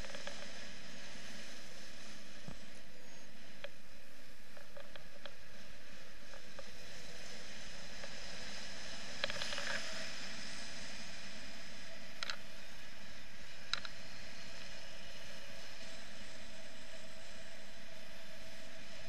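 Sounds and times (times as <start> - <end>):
wind rushing over camera: 0.0 - 19.0
light clicks: 13.7 - 14.0.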